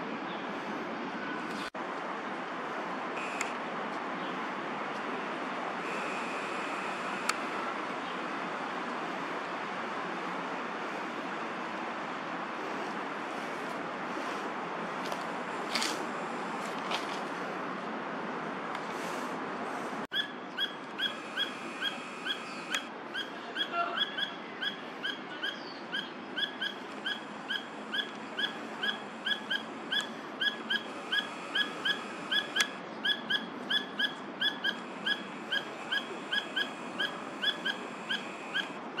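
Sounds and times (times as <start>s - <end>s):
hawk shrill calling: 20.2s - 38.8s.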